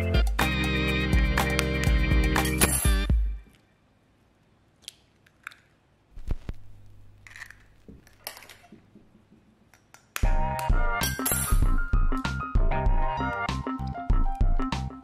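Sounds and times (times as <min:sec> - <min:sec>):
egg cracking: 0:04.8 - 0:08.8.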